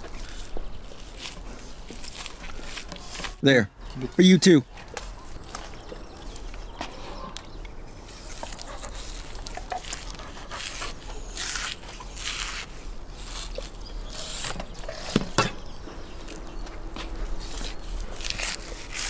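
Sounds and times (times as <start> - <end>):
knife rasping through raw meat: 8.0 - 15.1.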